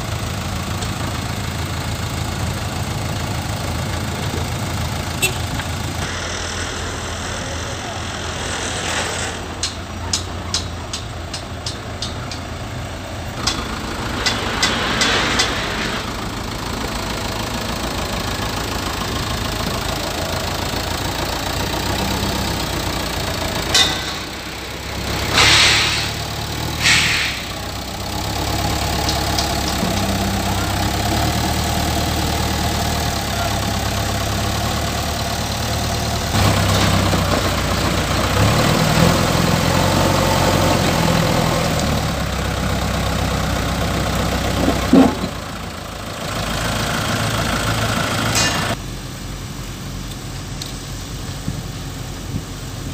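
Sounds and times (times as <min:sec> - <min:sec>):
diesel engine running under load: 0:00.0 - 0:52.9
short hissing bursts: 0:25.1 - 0:27.6.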